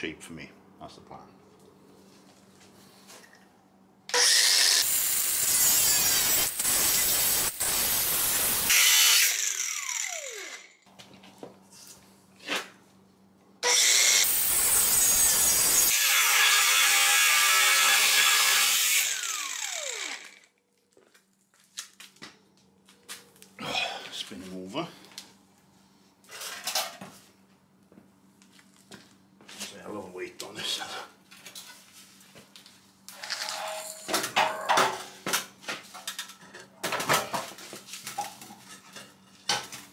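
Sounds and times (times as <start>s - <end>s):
grinder disc spinning down: 4.1s - 10.7s, 19.0s - 20.5s
angle grinder cutting steel pipe: 4.1s - 10.8s, 13.6s - 20.5s.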